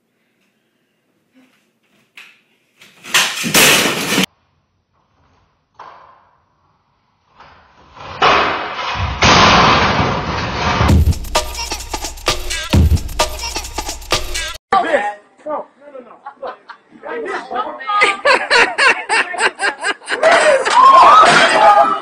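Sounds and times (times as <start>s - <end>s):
person crashing onto wooden floor: 3.1s - 4.3s, 8.0s - 11.0s.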